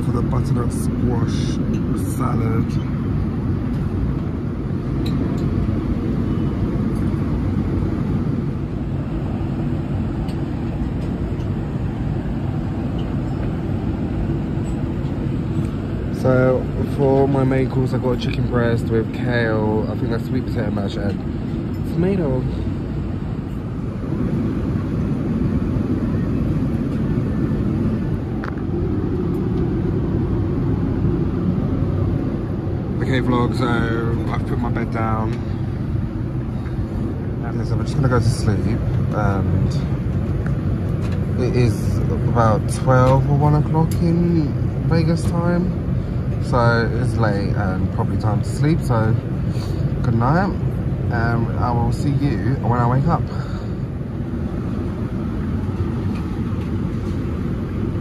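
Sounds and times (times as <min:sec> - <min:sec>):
airliner cabin rumble: 0:00.0 - 0:58.0.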